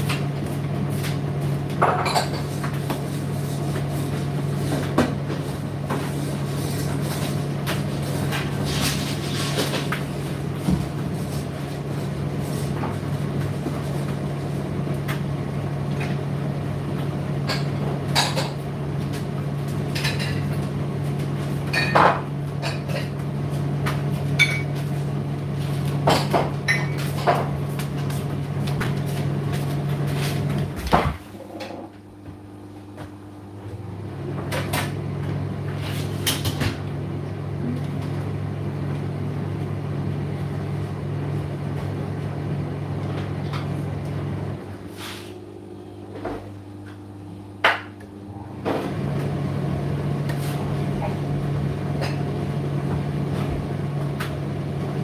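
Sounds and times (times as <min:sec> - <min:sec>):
tumble dryer motor hum: 0:00.0 - 0:55.0.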